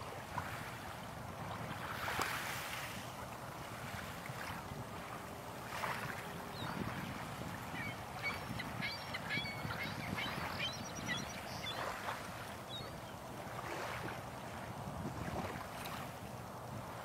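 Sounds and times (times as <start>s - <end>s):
waves lapping over pebbles: 0.0s - 6.4s, 13.3s - 17.0s.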